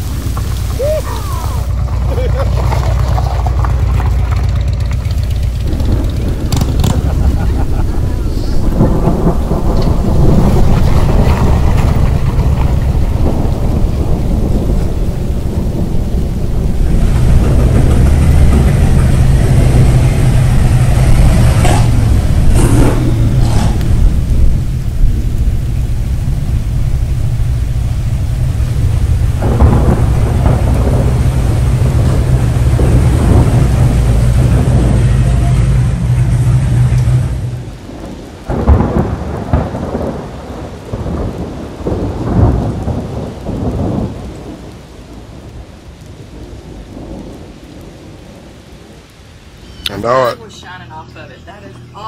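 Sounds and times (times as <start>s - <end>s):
irregular loud noise bursts: 0.0s - 2.6s, 4.9s - 47.2s
motorcycle engine idling: 1.7s - 7.6s.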